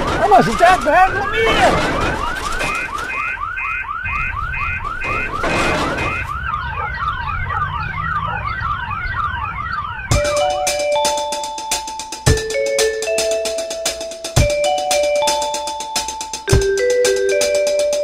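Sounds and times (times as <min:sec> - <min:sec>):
electronic alarm siren: 0:00.0 - 0:18.0
music with mallet-like notes: 0:10.1 - 0:18.0.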